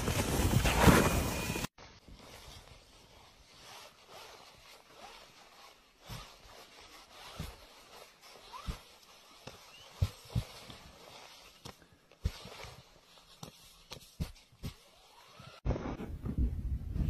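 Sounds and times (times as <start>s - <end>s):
snow sliding off roof: 0.0s - 1.7s.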